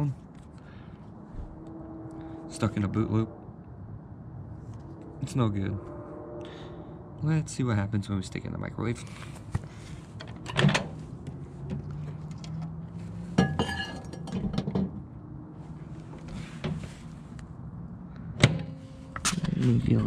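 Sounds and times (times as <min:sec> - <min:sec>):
knocks and clunks: 0:13.4 - 0:15.0.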